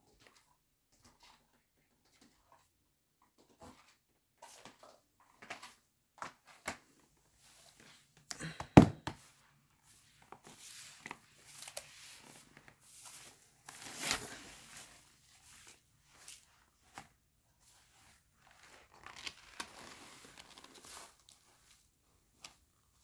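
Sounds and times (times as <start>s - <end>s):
rustling: 10.4s - 22.5s.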